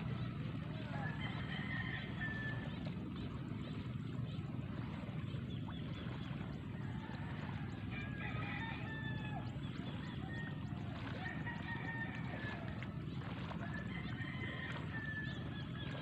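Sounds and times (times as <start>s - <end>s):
low rumble: 0.0s - 16.0s
rooster crowing faintly: 6.7s - 16.0s.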